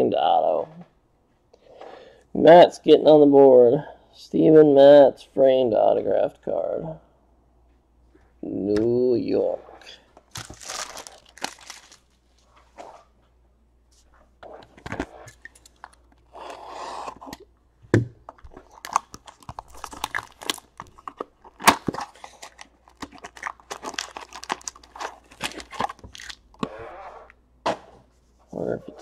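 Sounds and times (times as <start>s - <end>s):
packs being stacked: 10.2s - 12.2s, 18.3s - 26.7s
cardboard box crinkling: 10.3s - 12.2s, 18.4s - 26.7s.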